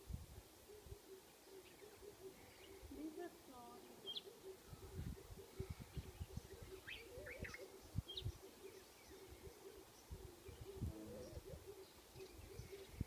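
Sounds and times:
birds chirping: 0.6 - 13.0.

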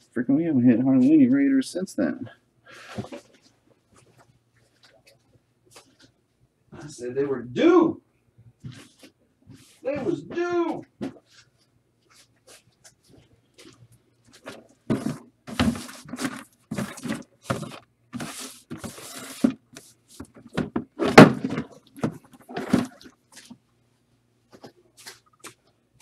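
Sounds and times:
packaging rustling and scraping: 11.3 - 23.6.

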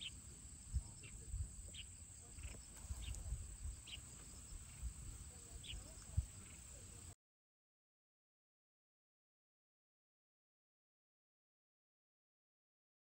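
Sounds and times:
wind on microphone: 0.0 - 1.8, 2.4 - 6.6
high insect drone: 0.0 - 7.2
insect chirps: 0.0 - 7.2.

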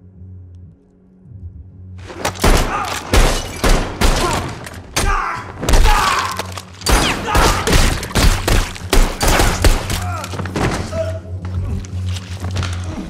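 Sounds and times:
handgun shots: 2.1 - 10.2.

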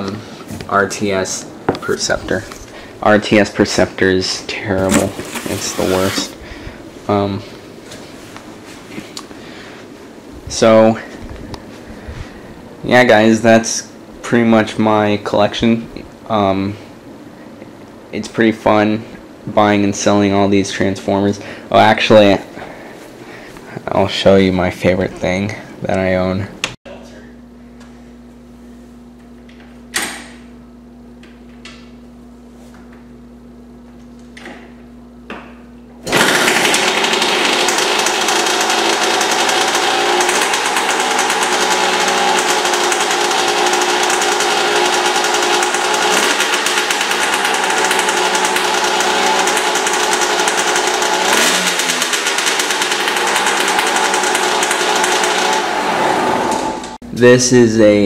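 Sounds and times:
dirt bike engine running: 4.8 - 6.4, 36.1 - 56.0
dirt bike kick-start kicks: 36.1 - 55.7.

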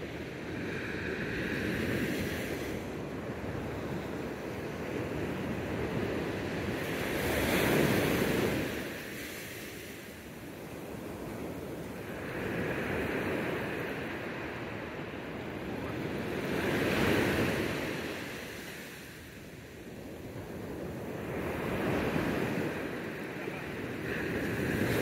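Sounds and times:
ocean surf breaking: 20.0 - 25.0.

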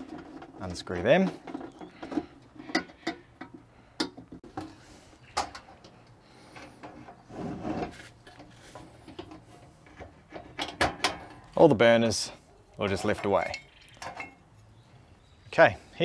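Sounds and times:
metal case rattling clatter: 0.0 - 3.0
metal stove case clicks and knocks: 0.0 - 4.7, 8.4 - 11.5, 13.0 - 14.4.

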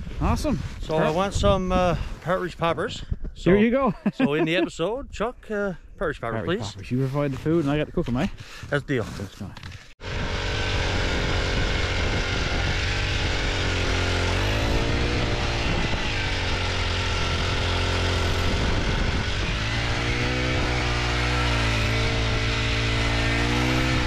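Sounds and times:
cordless drill motor drone: 10.0 - 24.0.

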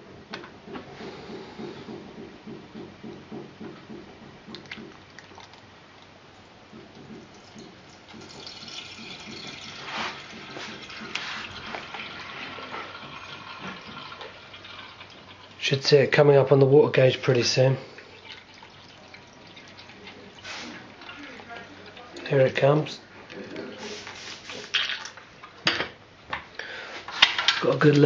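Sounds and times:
water glugging into boiler: 1.3 - 25.6.

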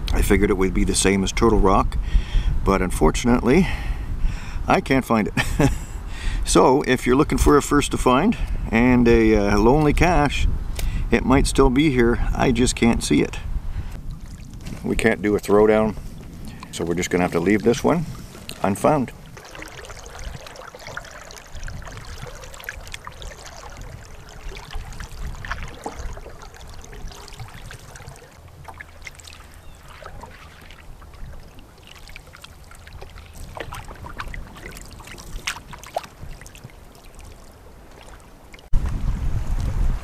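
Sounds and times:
water lapping against hull: 0.0 - 38.8
wind rumbling on microphone: 0.0 - 40.0
paddle splashing water: 13.9 - 38.8
water dripping off paddle: 16.0 - 38.7.

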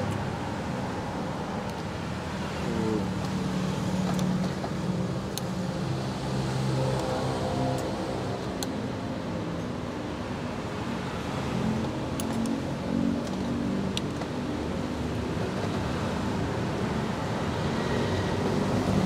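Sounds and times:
road traffic noise: 0.0 - 19.0.

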